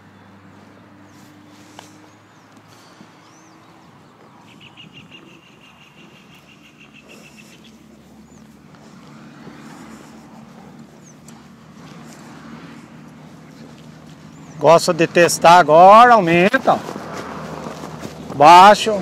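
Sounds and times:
birds chirping and trilling: 0.0s - 16.7s.

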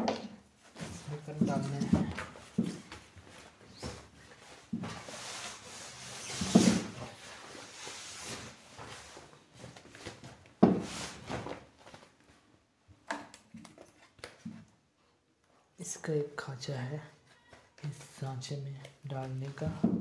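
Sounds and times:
plastic sheeting rustling: 0.6s - 12.2s.

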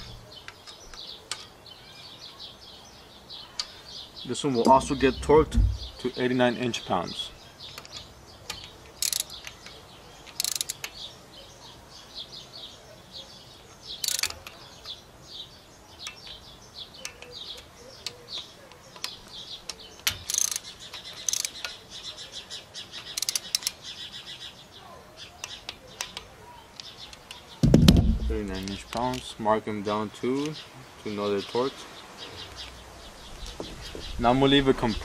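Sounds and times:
small birds chirping: 0.0s - 35.0s
hand ratchet clicking: 9.0s - 9.5s, 10.4s - 10.9s, 14.0s - 14.3s, 20.2s - 21.7s, 23.2s - 23.8s.

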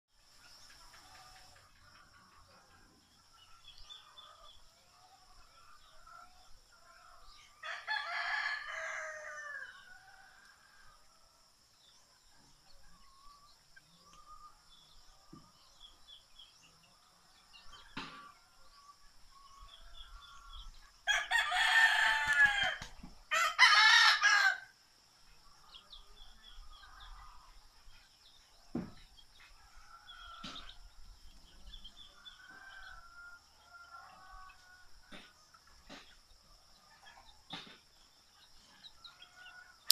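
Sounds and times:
rooster crowing: 7.6s - 11.0s, 21.0s - 24.7s.

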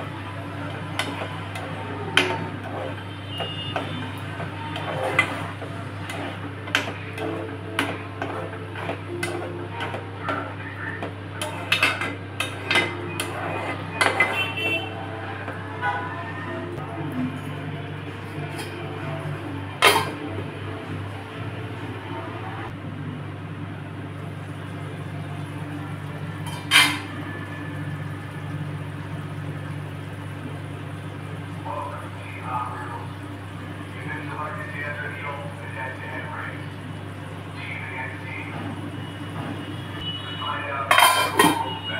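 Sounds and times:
metal ladle scraping steel pan: 1.0s - 9.9s, 11.4s - 14.9s.

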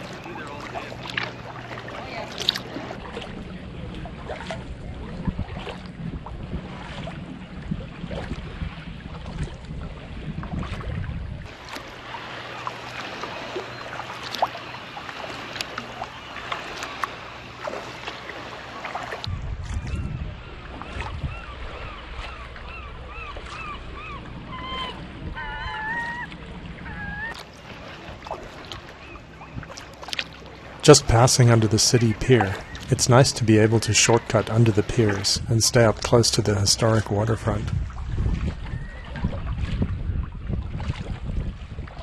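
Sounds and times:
paddle blades dipping and dripping: 0.0s - 42.0s
water lapping against hull: 0.0s - 42.0s
wind rumble on microphone: 2.0s - 11.8s, 19.2s - 29.8s, 34.2s - 42.0s.

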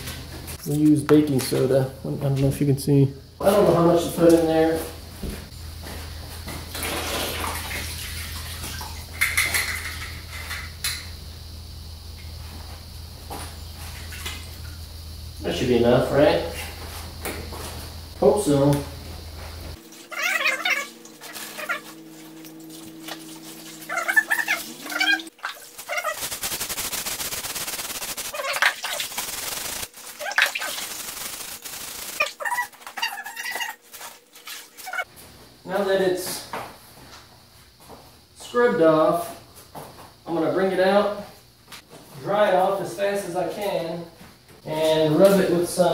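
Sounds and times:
scrubbing rust off wet metal: 19.8s - 35.1s
powder splashing into water: 20.0s - 32.7s.

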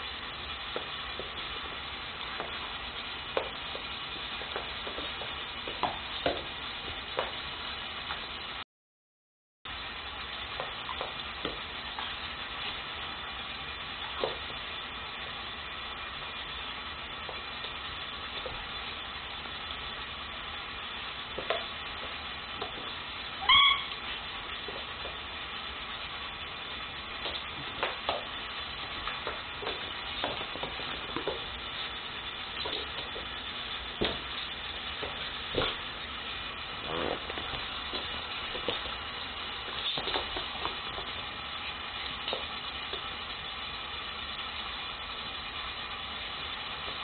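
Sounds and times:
steady hiss: 0.0s - 8.6s, 9.7s - 47.0s
dog yelping: 23.4s - 24.0s
soft squeaks: 23.4s - 24.1s
dogs scuffling: 34.0s - 36.0s, 36.7s - 41.2s.

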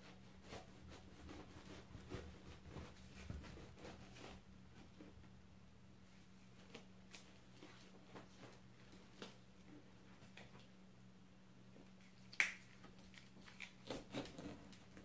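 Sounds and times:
knife cutting fruit rind: 12.3s - 15.0s.

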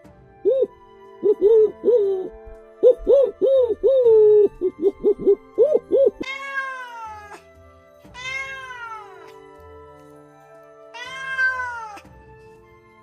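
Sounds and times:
background music: 0.0s - 13.0s
cat meowing: 6.2s - 7.4s, 8.2s - 9.4s, 11.0s - 12.0s.

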